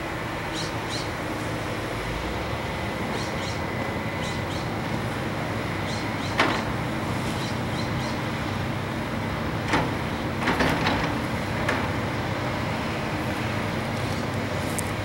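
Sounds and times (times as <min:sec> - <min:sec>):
excavator diesel engines running: 0:00.0 - 0:15.0.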